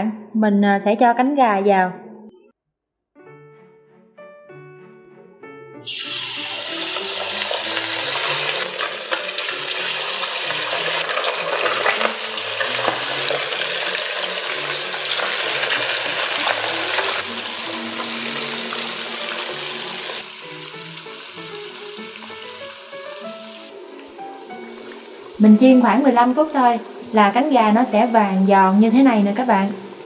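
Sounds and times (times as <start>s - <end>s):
oil sizzling and popping: 5.8s - 25.4s.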